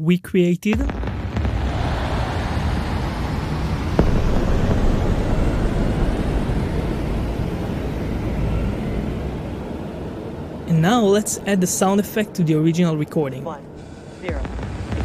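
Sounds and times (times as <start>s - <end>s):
deep rocket-like rumble: 0.7s - 15.0s
sharp crack: 0.8s - 8.0s.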